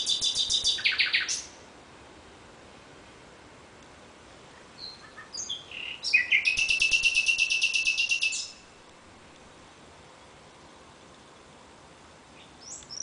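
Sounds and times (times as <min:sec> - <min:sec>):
nightingale singing: 0:00.0 - 0:01.6, 0:04.5 - 0:08.7, 0:12.3 - 0:13.0.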